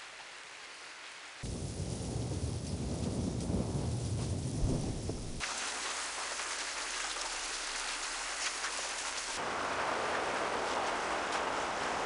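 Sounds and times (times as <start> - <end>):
rain hiss: 0.0 - 12.0
low thunder rumble: 1.4 - 5.5.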